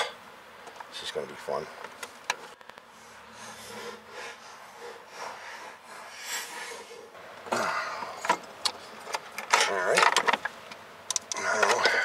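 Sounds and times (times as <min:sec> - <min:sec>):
man breathing hard through nose: 0:02.9 - 0:08.2.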